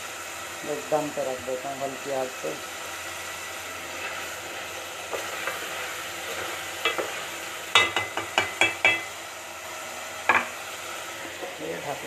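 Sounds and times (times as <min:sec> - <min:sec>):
gravy sizzling in a metal pot: 0:00.0 - 0:12.0
spoon tapping against pot: 0:07.7 - 0:09.1.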